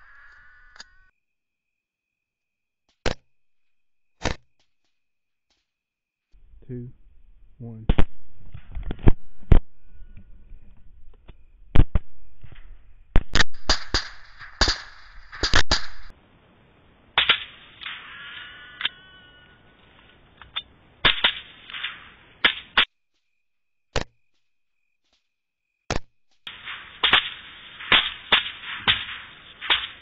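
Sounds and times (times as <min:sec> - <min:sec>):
rifle shots: 0:13.3 - 0:16.1, 0:21.0 - 0:22.9, 0:26.5 - 0:30.0.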